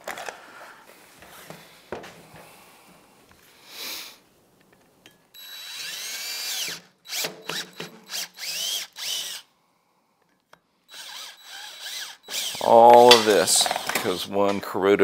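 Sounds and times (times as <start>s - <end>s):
cordless drill whining in bursts: 5.4s - 9.5s, 10.9s - 14.3s.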